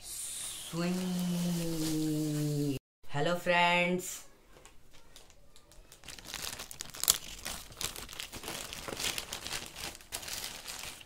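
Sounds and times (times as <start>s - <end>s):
plastic bag crinkling: 4.9s - 11.0s.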